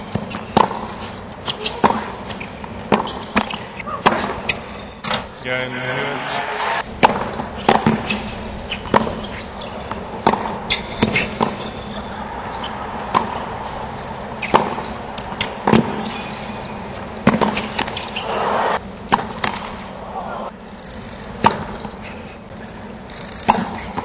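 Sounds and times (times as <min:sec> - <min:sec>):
tennis ball struck by racquets: 0:00.1 - 0:05.2, 0:06.9 - 0:18.4, 0:19.0 - 0:19.9, 0:21.4 - 0:21.7, 0:23.4 - 0:24.0
crowd murmur: 0:11.8 - 0:15.6.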